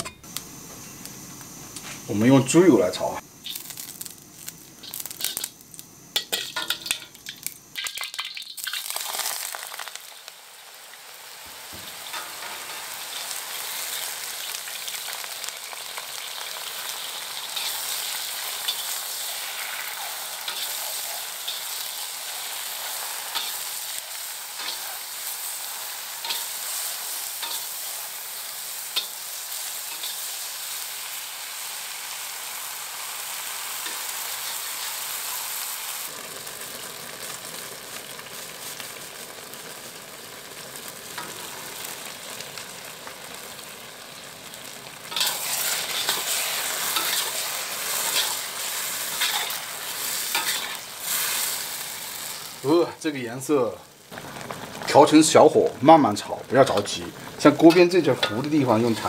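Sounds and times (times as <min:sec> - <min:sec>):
mushrooms sizzling in a wok: 0:00.0 - 0:59.0
metal spatula scraping wok: 0:17.1 - 0:28.0, 0:45.1 - 0:52.4.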